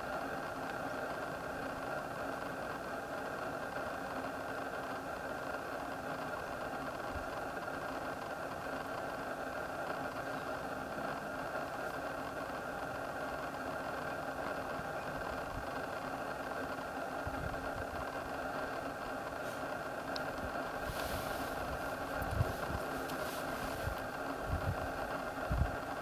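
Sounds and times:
car engine idling: 0:00.4 - 0:26.0.

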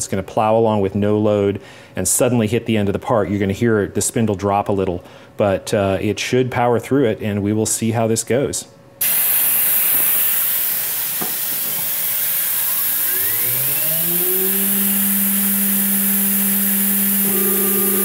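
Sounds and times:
compressed air hissing: 0:09.0 - 0:18.0
spindle motor whining: 0:10.8 - 0:18.0
higher tone: 0:12.6 - 0:18.0.

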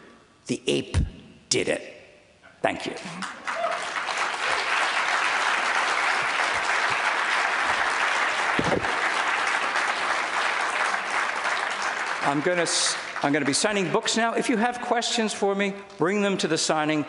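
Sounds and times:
audience applauding: 0:03.2 - 0:14.1.

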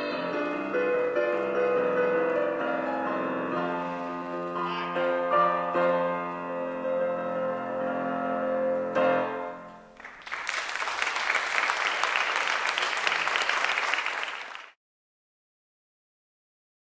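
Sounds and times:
piano chords: 0:00.0 - 0:10.1
applause: 0:10.0 - 0:14.8.

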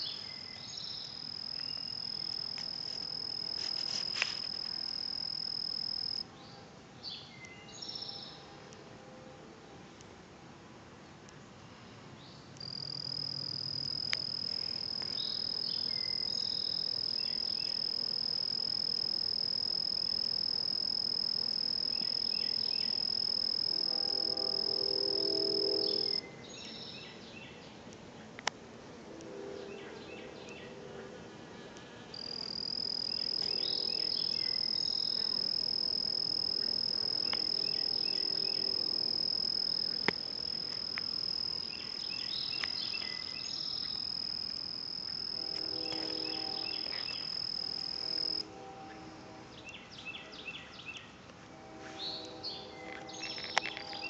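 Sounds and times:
cricket trilling: 0:00.0 - 0:06.2, 0:12.6 - 0:26.2, 0:32.2 - 0:48.5
short insect chirps: 0:00.0 - 0:06.2, 0:12.6 - 0:26.2, 0:32.2 - 0:48.5, 0:52.8 - 0:54.0.

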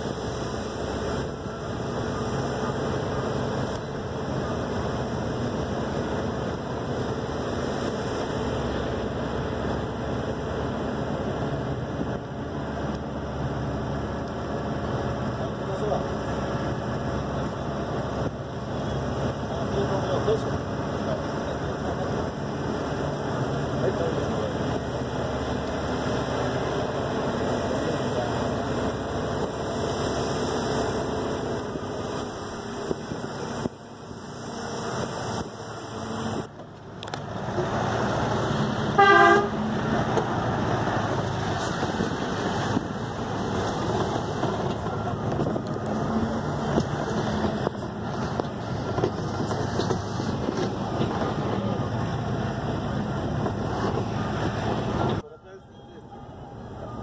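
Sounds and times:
bus engine and road noise: 0:00.0 - 0:57.0
horn honking: 0:38.9 - 0:39.6.

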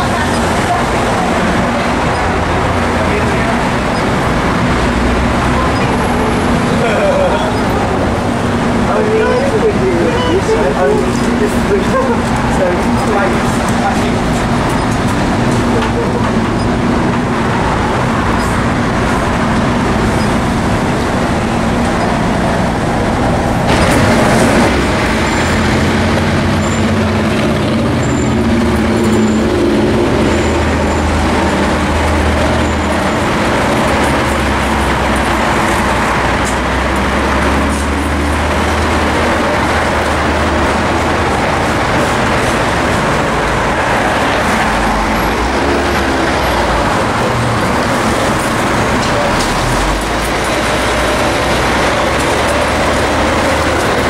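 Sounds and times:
cars passing: 0:00.0 - 0:54.0
low engine drone: 0:00.0 - 0:54.0.

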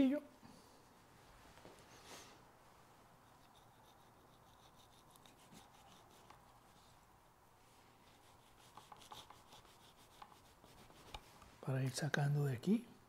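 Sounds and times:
knife scraping ham rind: 0:03.3 - 0:06.5, 0:08.2 - 0:11.4.

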